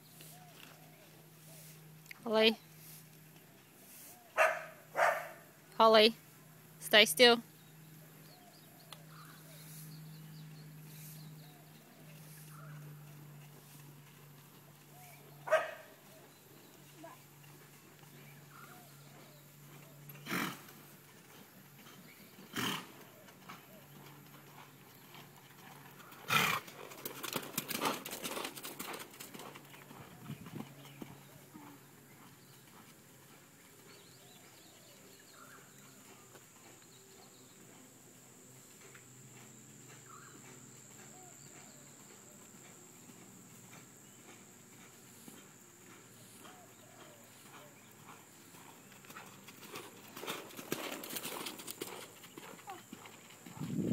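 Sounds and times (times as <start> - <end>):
horse hoofbeats: 11.5 - 53.9.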